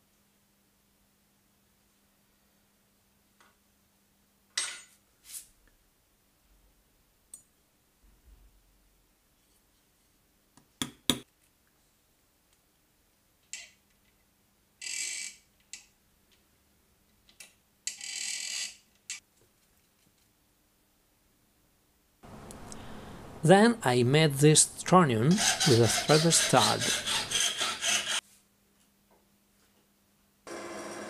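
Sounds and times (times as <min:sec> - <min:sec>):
drill bit cutting brass: 0:25.1 - 0:28.2.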